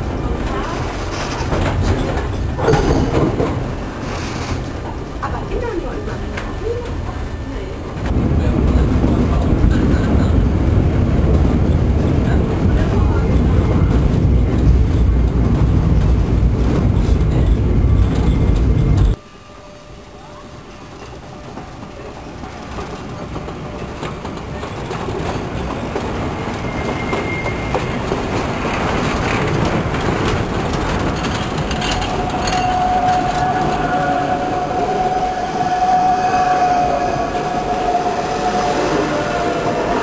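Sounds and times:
train wheels rumbling on rails: 0:00.0 - 0:40.0.

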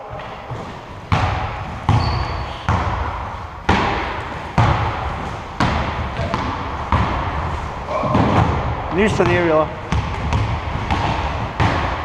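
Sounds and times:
basketball bouncing on gym floor: 0:00.1 - 0:12.0
high squeak: 0:02.0 - 0:02.6.

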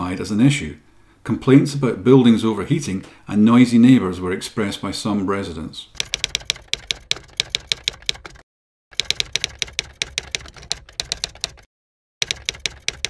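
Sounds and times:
typewriter key clicks: 0:06.0 - 0:08.4, 0:09.0 - 0:13.0.

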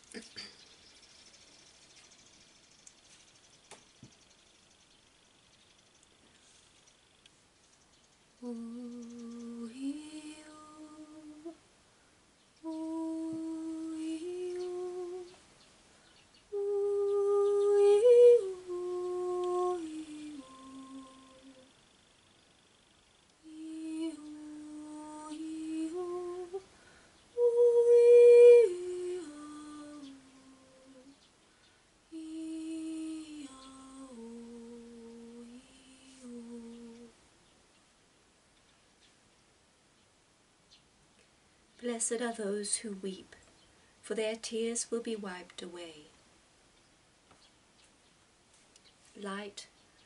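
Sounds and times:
person humming melody: 0:08.4 - 0:11.6, 0:12.6 - 0:15.4, 0:16.5 - 0:21.7, 0:23.4 - 0:26.7, 0:27.4 - 0:31.2, 0:32.1 - 0:37.2.

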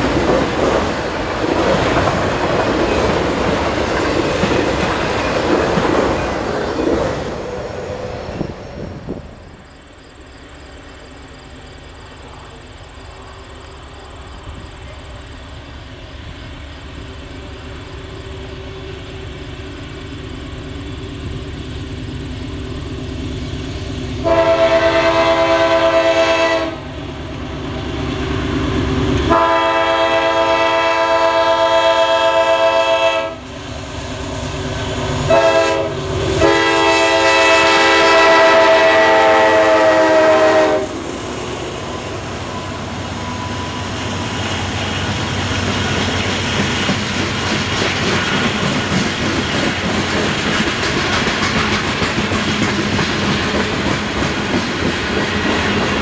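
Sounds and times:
diesel locomotive rumble: 0:00.0 - 0:56.0
freight cars rolling past: 0:00.0 - 0:56.0
train air horn blasts: 0:24.2 - 0:27.0, 0:29.3 - 0:33.5, 0:35.2 - 0:41.0.

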